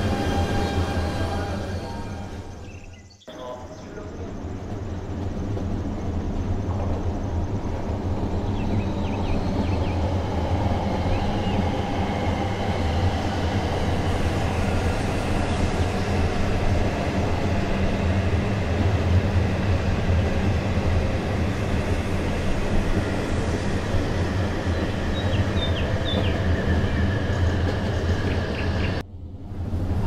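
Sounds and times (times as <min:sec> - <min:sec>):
train wheels on rails: 0:00.0 - 0:30.0.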